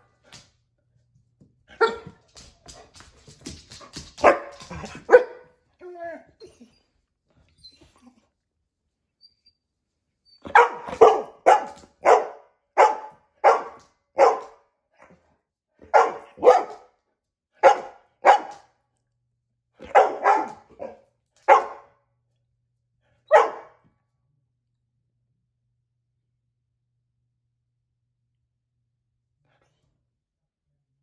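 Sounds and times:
dog barking: 1.8 - 2.2, 4.2 - 5.6, 10.4 - 15.1, 15.8 - 17.0, 17.6 - 18.7, 19.8 - 22.0, 23.2 - 23.8.

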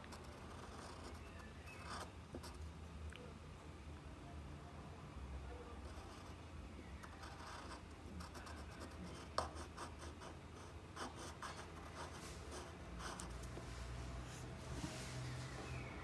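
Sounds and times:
pen scratching on paper: 0.1 - 2.6, 7.1 - 13.6.

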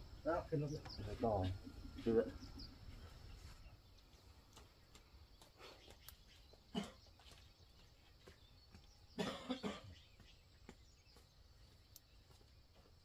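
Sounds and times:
person coughing: 6.7 - 7.0, 9.2 - 10.0.

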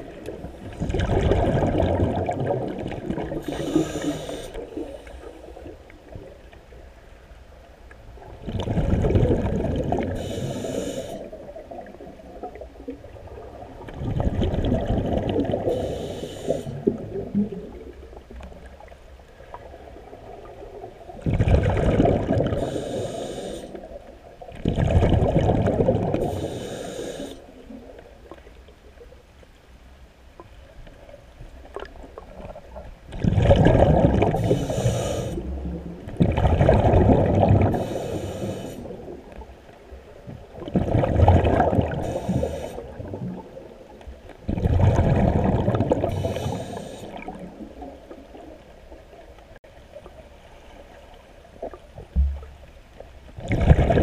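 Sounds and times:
exhaled bubbles underwater: 0.0 - 7.0, 8.0 - 28.7, 31.0 - 49.3, 51.6 - 54.0
regulator hiss: 3.4 - 5.5, 10.2 - 11.3, 15.7 - 16.9, 22.6 - 23.9, 26.2 - 27.5, 34.4 - 35.4, 37.8 - 38.9, 42.0 - 42.9, 46.1 - 47.2.

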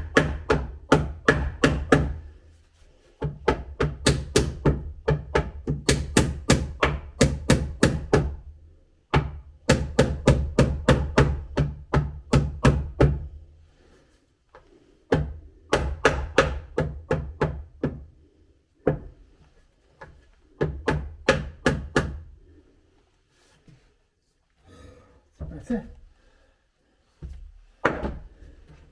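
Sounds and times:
hammer striking wood: 0.0 - 2.2, 3.2 - 8.4, 9.1 - 13.3, 15.1 - 18.1, 20.6 - 22.3.

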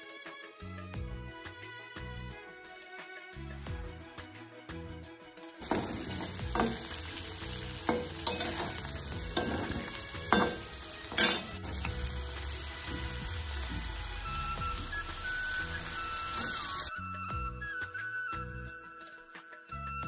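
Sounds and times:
spatula knocking and scraping pan: 5.6 - 7.2, 7.8 - 12.0
food sizzling in a pan: 5.6 - 16.9.

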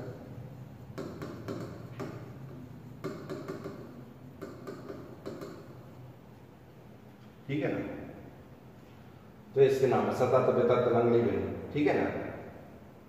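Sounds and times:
chalk tapping and scraping on board: 0.0 - 6.0.

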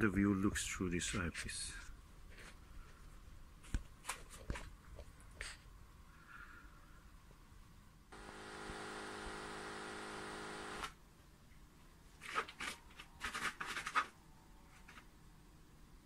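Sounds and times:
machine hum: 8.1 - 11.0
clicks and rustles: 12.2 - 15.1.

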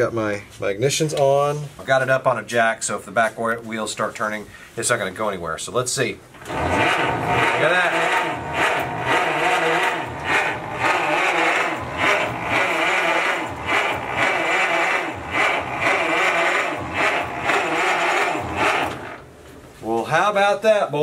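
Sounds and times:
engine cranking with electric starter: 6.3 - 19.3.

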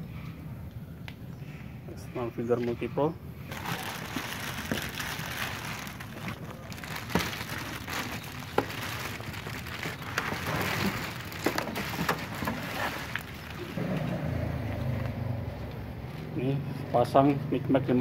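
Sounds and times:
plastic bag rustling and crinkling: 3.5 - 13.8.

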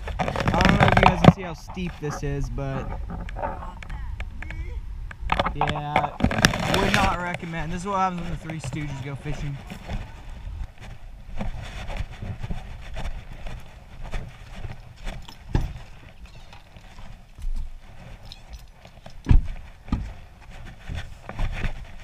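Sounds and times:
footsteps crunching on gravel: 5.8 - 22.0.

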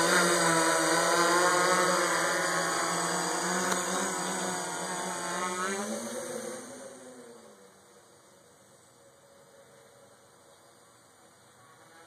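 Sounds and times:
drone propellers buzzing: 0.0 - 8.6.

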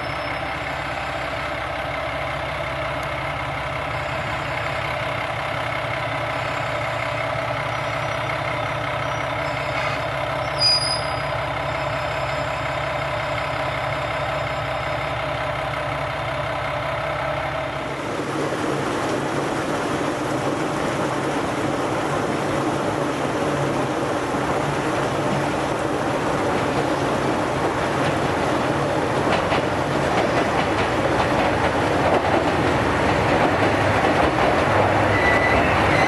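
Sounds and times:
diesel railcar engine humming: 0.0 - 36.0
diesel train rumbling: 0.0 - 36.0
high-pitched squeal: 9.0 - 12.6, 35.0 - 36.0.

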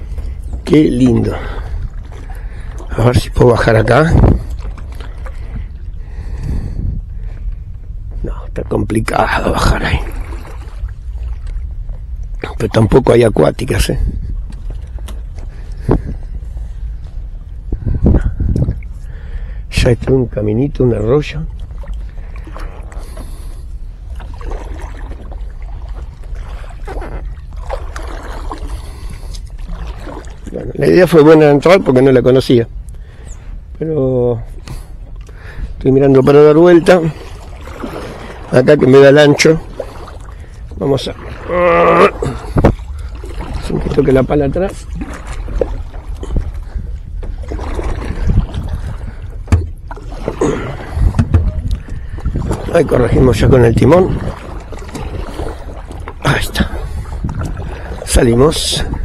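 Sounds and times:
paddle strokes splashing in water: 0.0 - 6.4, 9.6 - 11.7, 21.5 - 31.0, 34.6 - 59.0
steady low rumble: 0.0 - 59.0
sharp knocks: 51.1 - 51.6.

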